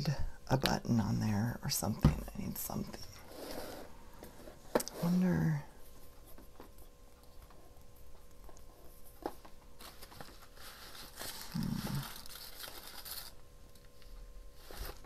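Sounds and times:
paper and plastic rustling: 0:05.9 - 0:15.0.

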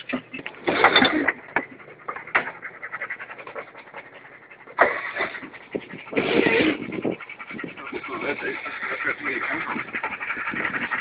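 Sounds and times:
water swishing and splashing: 0:00.0 - 0:11.0
wind rushing on microphone: 0:05.2 - 0:11.0.

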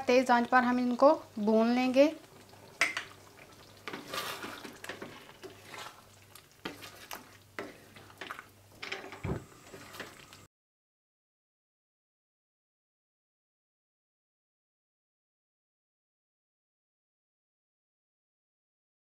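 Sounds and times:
food stirred in wet sauce: 0:02.0 - 0:10.5
spatula scraping and knocking wok: 0:02.7 - 0:10.4.

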